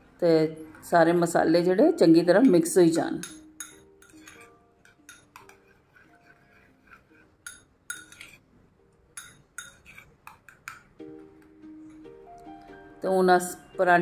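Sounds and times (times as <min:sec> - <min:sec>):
spoon clinking against ceramic bowl: 0:03.1 - 0:08.5, 0:09.1 - 0:12.1.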